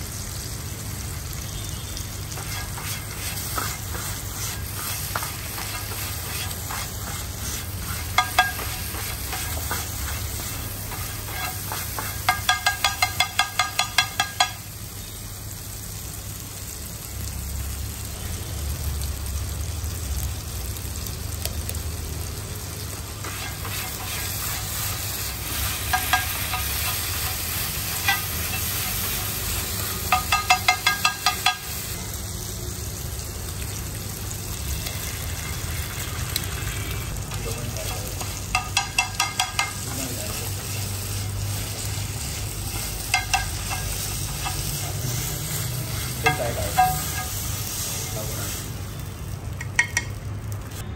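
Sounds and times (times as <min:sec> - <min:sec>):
food sizzling on griddle: 0:00.0 - 0:50.9
metal scraper clacking on griddle: 0:10.9 - 0:14.6, 0:30.1 - 0:31.7, 0:46.2 - 0:47.3.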